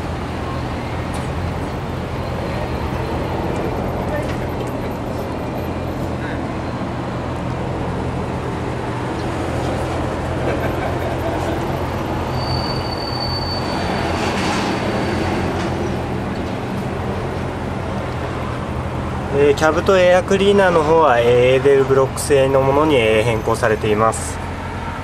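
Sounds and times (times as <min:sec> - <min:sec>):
traffic and machinery hum: 0:00.0 - 0:25.0
vehicle passing: 0:00.0 - 0:25.0
thin high squeal: 0:12.2 - 0:15.3.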